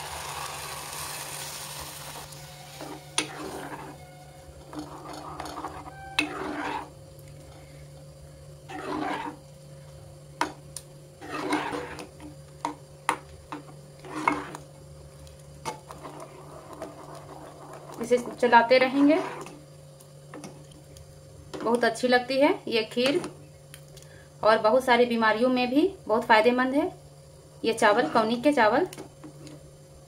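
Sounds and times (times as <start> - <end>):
milk sizzling in hot pan: 0.0 - 7.0, 10.4 - 21.0
ladle stirring and scraping pan: 2.5 - 7.0, 8.7 - 9.4, 11.2 - 12.2, 14.0 - 14.6, 15.6 - 19.6, 27.9 - 28.4.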